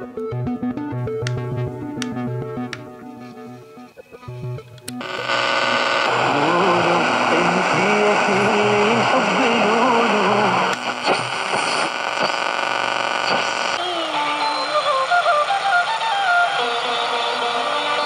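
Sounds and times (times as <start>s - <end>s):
faint radio station audio: 3.0s - 18.0s
radio static hiss: 5.0s - 18.0s
static crackles: 5.0s - 18.0s.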